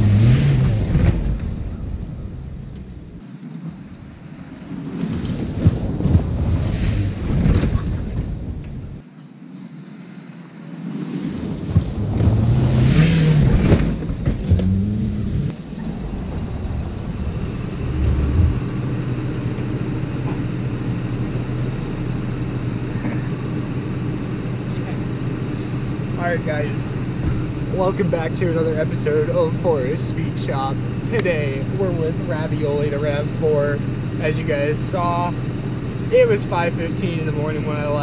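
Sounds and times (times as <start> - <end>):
car engine running: 0.0 - 9.0, 11.8 - 38.0
wind on microphone: 15.7 - 18.8.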